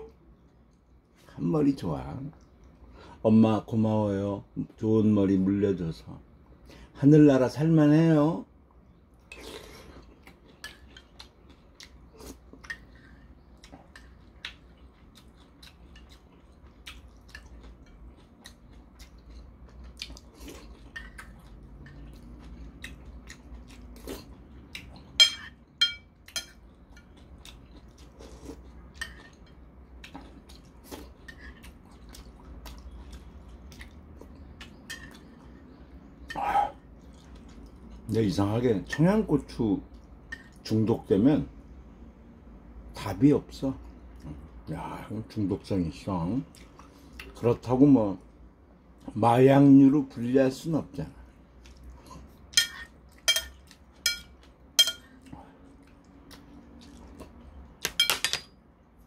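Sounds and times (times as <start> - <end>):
man chewing and slurping: 9.2 - 25.2, 26.2 - 38.0
metal spoon clinking ceramic bowl: 25.2 - 26.6, 52.6 - 55.1, 57.9 - 58.6.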